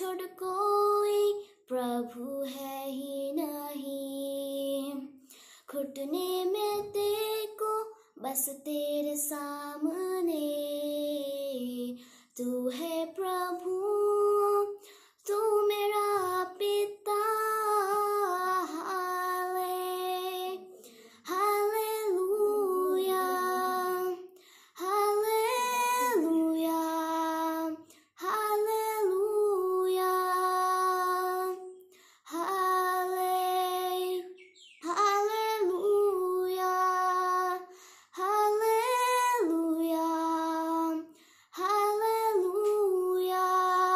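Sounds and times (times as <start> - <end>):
girl singing unaccompanied: 0.0 - 43.9.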